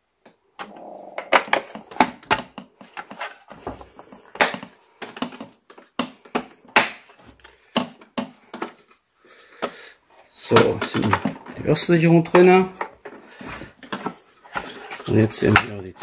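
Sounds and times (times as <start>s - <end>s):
plastic scraping: 10.5s - 16.0s.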